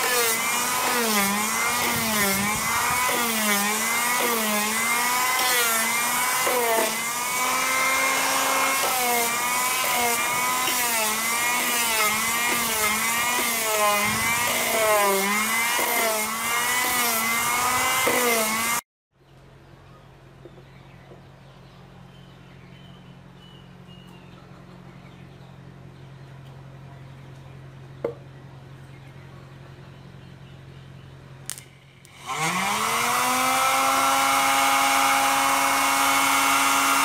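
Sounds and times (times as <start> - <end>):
hand sander motor whine: 0.0 - 18.8, 32.1 - 37.0
sanding a wooden board: 0.0 - 18.8.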